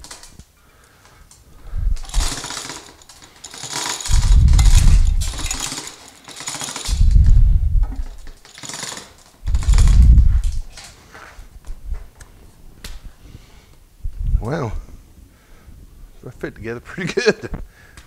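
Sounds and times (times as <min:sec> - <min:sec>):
chain hoist rattling: 0:00.0 - 0:11.0.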